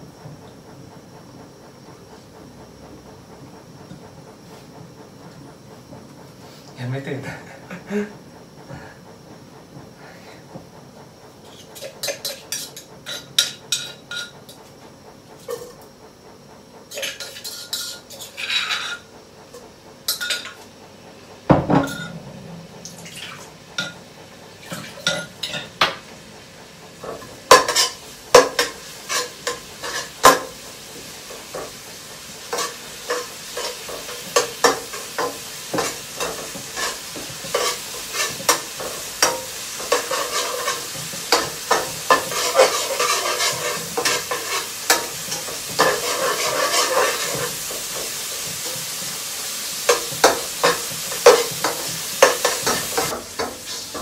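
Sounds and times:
food sizzling in a pan: 0:11.4 - 0:14.4, 0:16.9 - 0:19.1, 0:22.8 - 0:26.3, 0:27.0 - 0:54.0
utensils clinking and scraping: 0:32.5 - 0:47.5.

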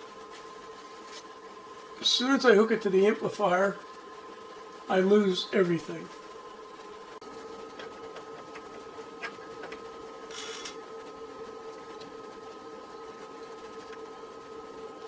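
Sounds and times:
electrical hum: 0:00.0 - 0:15.0
thin high whine: 0:10.2 - 0:10.9.

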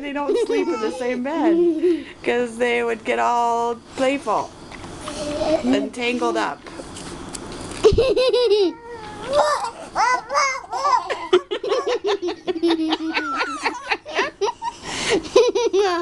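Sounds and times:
woman laughing: 0:00.0 - 0:02.1, 0:07.8 - 0:08.8, 0:11.0 - 0:16.0
baby babbling: 0:08.7 - 0:11.1.

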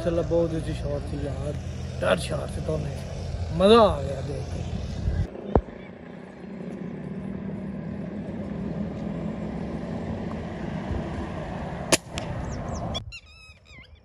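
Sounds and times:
birds chirping: 0:00.0 - 0:10.7, 0:12.2 - 0:14.0
steady low rumble: 0:00.0 - 0:13.0
air rifle shot: 0:11.9 - 0:12.4.

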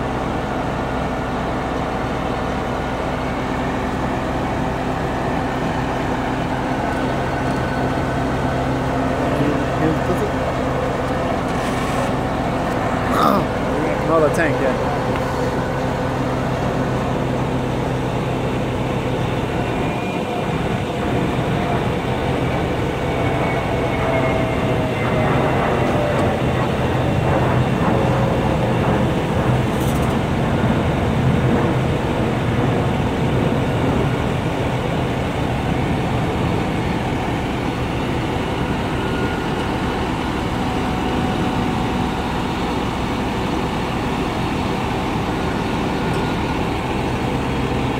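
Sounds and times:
diesel truck engine running: 0:00.0 - 0:47.9
faint whine sliding down: 0:02.8 - 0:30.3.

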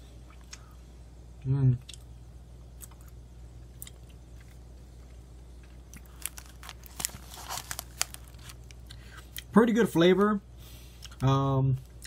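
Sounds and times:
chewing crispy food: 0:01.4 - 0:09.6, 0:10.9 - 0:12.0.

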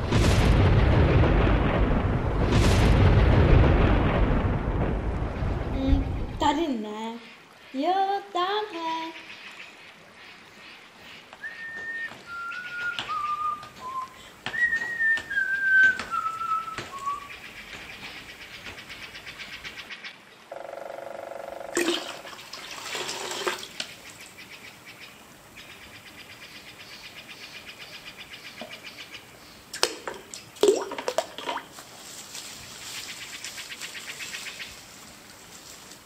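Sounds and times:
loud burst of noise: 0:00.0 - 0:06.4
person whistling a tune: 0:11.4 - 0:17.3.

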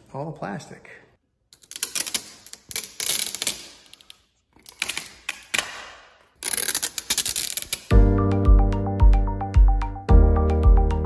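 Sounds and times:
plastic film being peeled: 0:01.6 - 0:05.6, 0:06.3 - 0:07.9.

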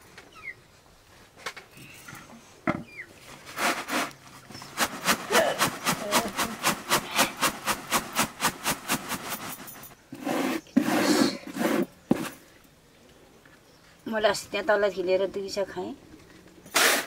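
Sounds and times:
back-and-forth scraping strokes: 0:03.2 - 0:12.4.

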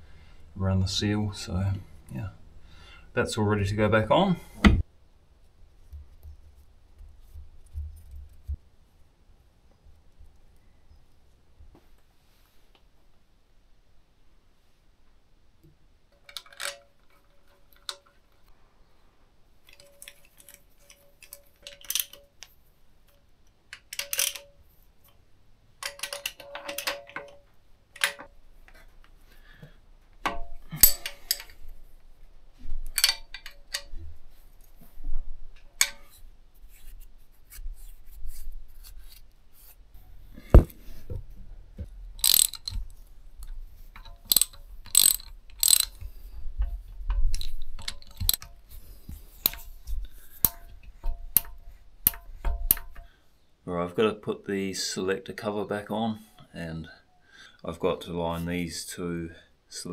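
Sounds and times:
ratchet wrench clicking: 0:42.2 - 0:46.1, 0:47.3 - 0:48.5
sharp metallic clicks: 0:42.2 - 0:46.1, 0:47.1 - 0:48.6.

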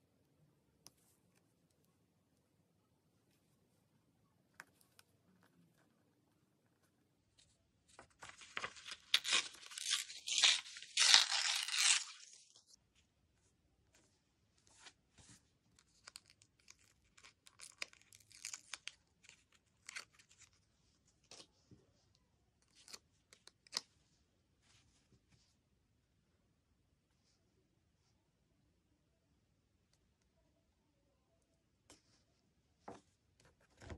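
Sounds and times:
paper tearing and crinkling: 0:08.2 - 0:12.6.

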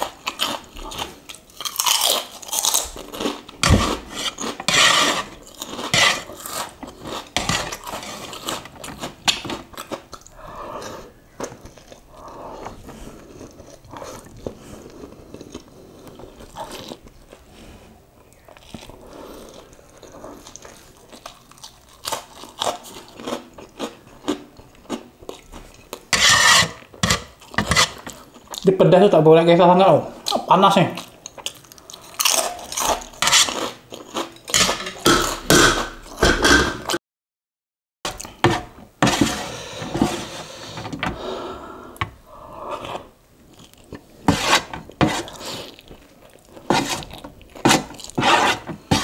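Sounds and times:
chewing noodles: 0:00.0 - 0:17.6, 0:18.2 - 0:26.1.

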